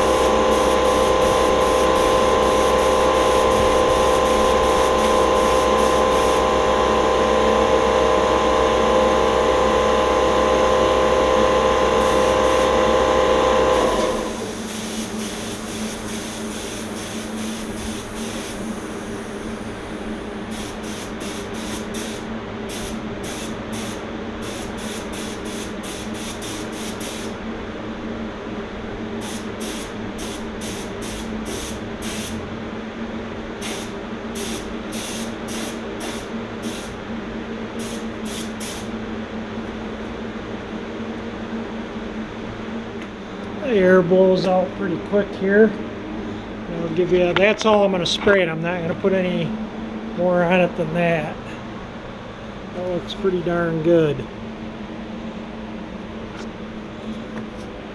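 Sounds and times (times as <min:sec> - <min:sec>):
spray gun hissing: 0:00.0 - 0:06.6, 0:11.9 - 0:12.8, 0:13.7 - 0:27.4, 0:29.2 - 0:32.4, 0:33.6 - 0:37.0, 0:37.8 - 0:38.9
steady machine hum: 0:00.0 - 0:57.9.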